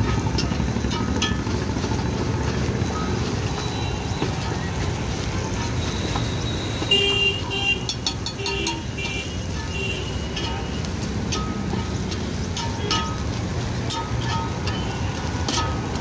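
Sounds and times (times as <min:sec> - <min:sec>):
low rumble of street traffic: 0:00.0 - 0:16.0
vehicle horn honking: 0:06.6 - 0:10.8.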